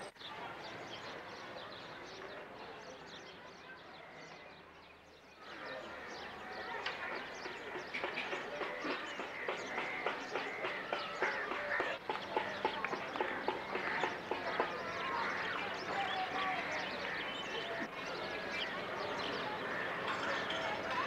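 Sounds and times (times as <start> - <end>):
birds chirping and chattering: 0.0 - 21.0.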